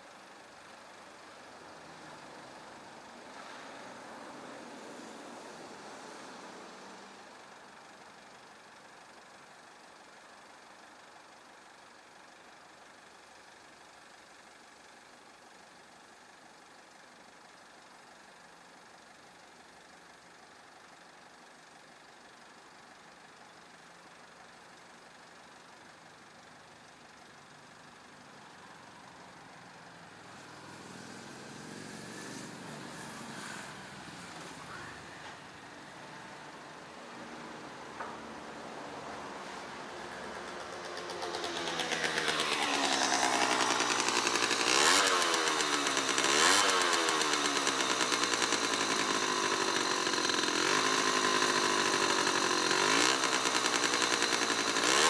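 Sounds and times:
van engine idling: 0.0s - 3.4s, 4.2s - 55.0s
rumble with rising whine: 30.1s - 46.2s.

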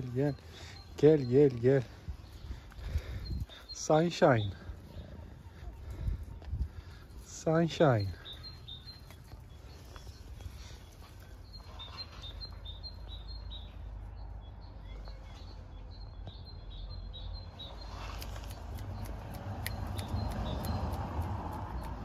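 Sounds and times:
small bird chirping: 7.4s - 22.0s.

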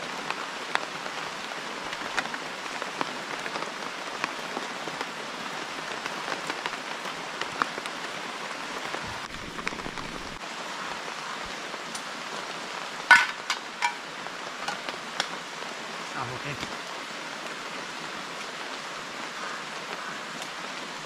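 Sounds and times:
steady rain: 0.0s - 21.0s.

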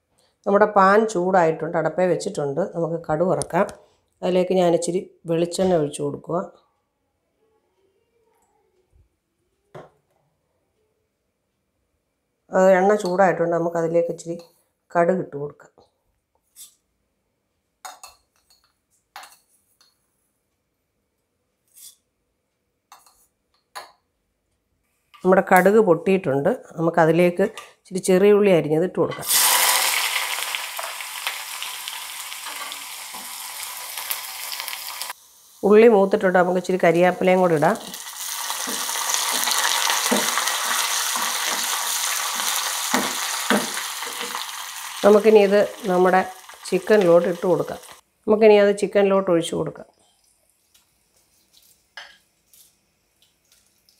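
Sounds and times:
wooden spoon scraping a pan: 21.7s - 22.0s, 38.5s - 44.4s
seeds popping in hot oil: 29.2s - 48.0s.

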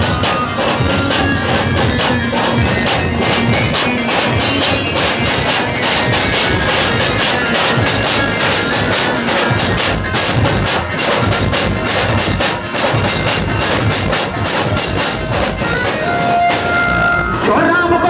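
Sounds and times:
band melody: 0.0s - 18.0s
fast steady drumming: 0.0s - 18.0s.

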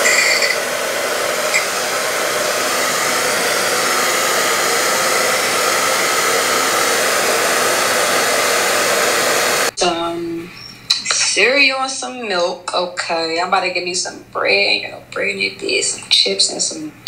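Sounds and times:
hair dryer blowing: 0.0s - 9.8s.

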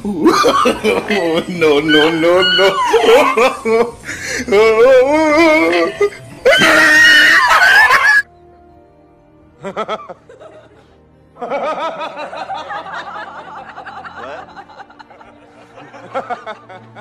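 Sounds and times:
man chuckling: 0.0s - 4.7s
faint background music: 0.0s - 17.0s.

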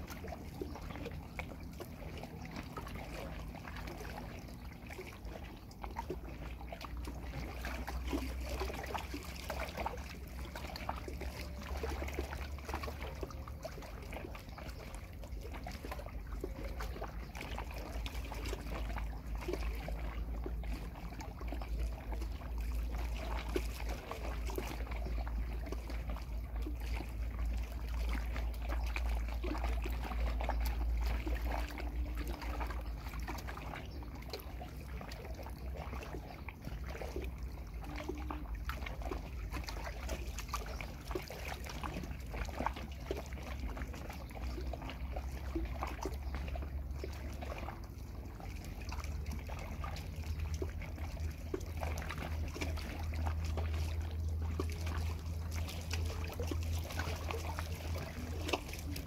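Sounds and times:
water lapping against a pier: 0.0s - 59.0s.

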